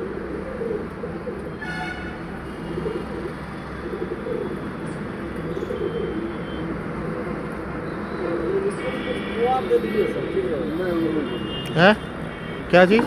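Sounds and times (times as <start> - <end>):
pigeons cooing: 0.0 - 11.5.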